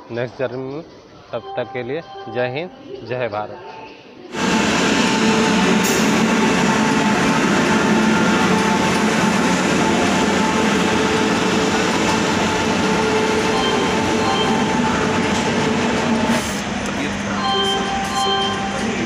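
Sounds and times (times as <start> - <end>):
train rumbling over rails: 4.3 - 19.0.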